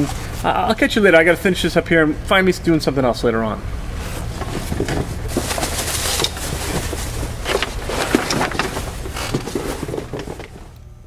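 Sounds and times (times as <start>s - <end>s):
steady low hum: 0.0s - 11.0s
boxes rustling and clattering: 3.9s - 10.9s.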